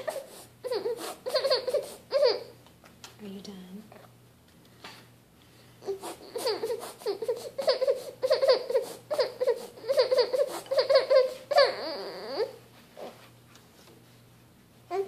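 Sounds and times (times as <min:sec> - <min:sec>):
baby whining and whimpering: 0:00.0 - 0:02.6, 0:05.8 - 0:13.2.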